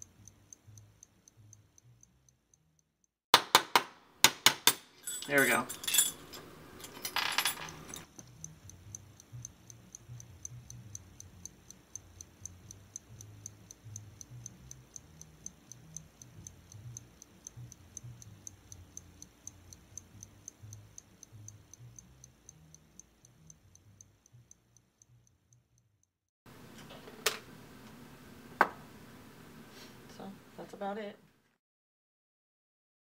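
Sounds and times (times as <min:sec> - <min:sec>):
clock ticking: 0:00.0 - 0:03.1, 0:07.6 - 0:26.1
metal parts clinking on vise: 0:05.0 - 0:08.1.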